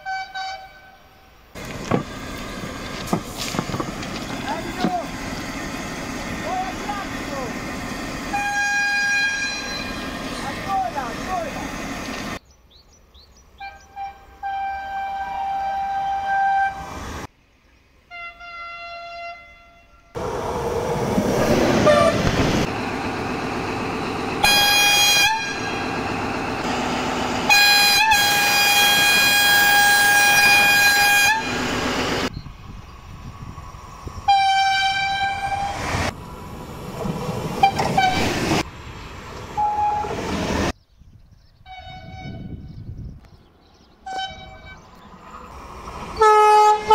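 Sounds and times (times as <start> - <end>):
train horn blasts: 0.0 - 1.1, 8.3 - 10.0, 13.6 - 17.0, 18.1 - 20.1, 21.8 - 22.3, 24.4 - 26.0, 27.4 - 32.0, 34.3 - 35.8, 37.6 - 38.4, 39.6 - 40.2, 41.6 - 42.7, 44.0 - 44.9, 46.2 - 46.9
passing train rumble: 1.4 - 17.3, 17.9 - 40.8, 41.6 - 46.9.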